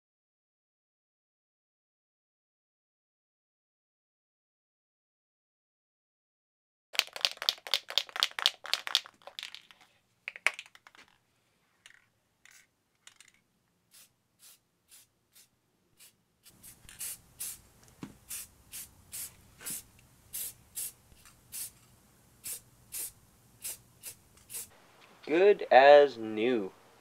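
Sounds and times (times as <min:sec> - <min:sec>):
spray can ball rattling: 0:07.0 - 0:11.2, 0:11.8 - 0:17.6, 0:18.2 - 0:24.7.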